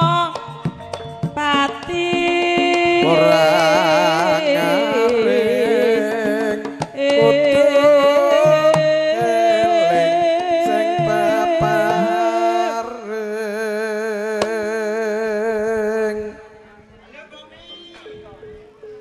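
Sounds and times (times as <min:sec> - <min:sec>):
drum strokes: 0:00.0 - 0:12.8
metallophone tones: 0:00.0 - 0:12.8
person singing ornamented melody: 0:01.4 - 0:16.6.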